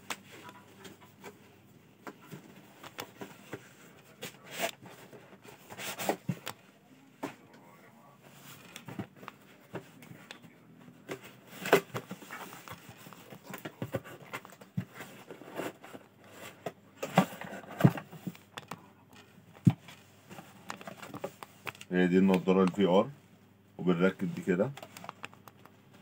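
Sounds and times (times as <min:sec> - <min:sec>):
cardboard flaps rustling and scraping: 0:02.0 - 0:06.6, 0:10.8 - 0:18.4.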